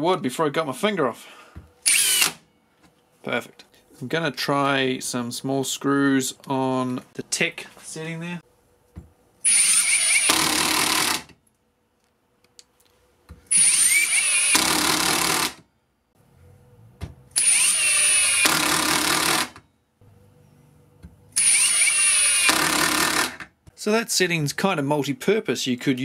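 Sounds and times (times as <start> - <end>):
impact driver driving screws: 1.9 - 2.4, 9.5 - 11.4, 13.5 - 15.6, 17.4 - 19.6, 21.4 - 23.5.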